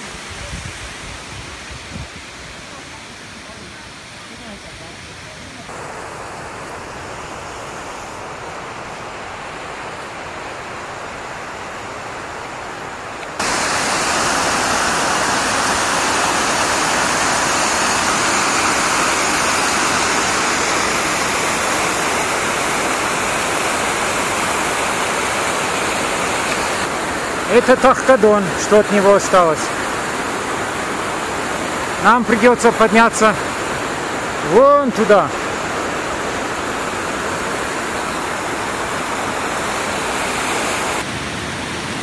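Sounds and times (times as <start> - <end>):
stream cascading over rocks: 0.0 - 42.0.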